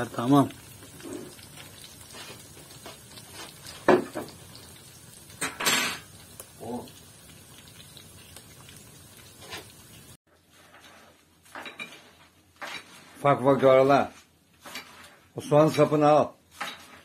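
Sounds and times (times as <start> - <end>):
faint steady hiss: 5.2 - 9.6
metal cookware clanking: 5.3 - 6.1.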